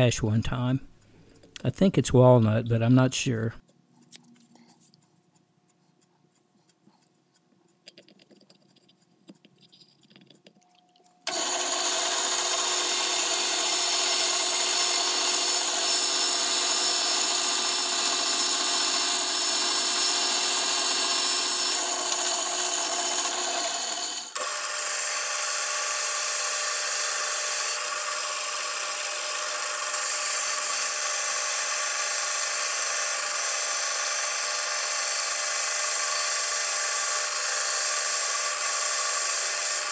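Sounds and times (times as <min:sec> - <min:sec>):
band saw cutting wood: 0:11.3 - 0:39.9.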